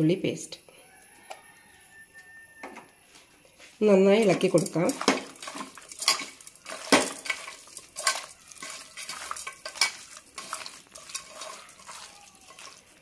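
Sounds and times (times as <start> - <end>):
clicks and knocks against pot: 4.2 - 12.9
wet squelching of meat mixing: 4.2 - 13.0.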